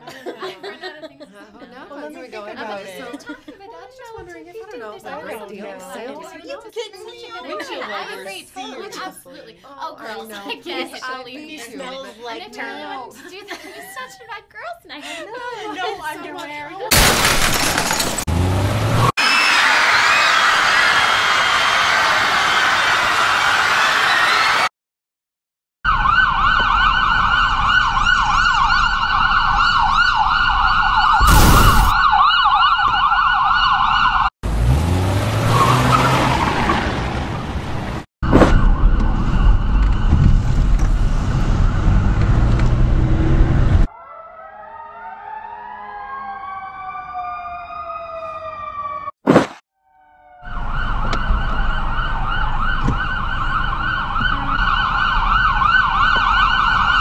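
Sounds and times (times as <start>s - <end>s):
sirens yelping: 25.9s - 34.3s, 38.2s - 40.6s, 43.8s - 49.2s, 49.9s - 57.0s
loud rushing noise: 31.2s - 32.0s
sharp bang: 31.2s - 32.0s.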